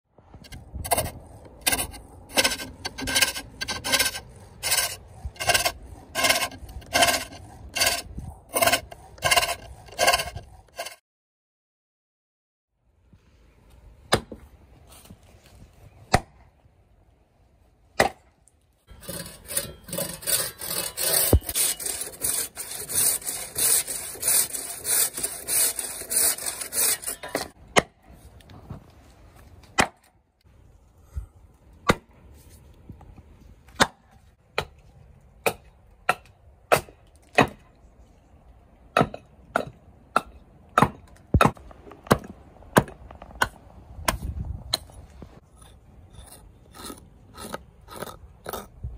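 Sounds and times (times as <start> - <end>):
saw strokes through wood: 0.5 - 11.0, 18.9 - 27.6
axe chopping wood: 14.1 - 14.4, 16.1 - 16.4, 18.0 - 18.3, 27.4 - 28.0, 29.8 - 30.1, 35.4 - 37.7, 38.9 - 44.3.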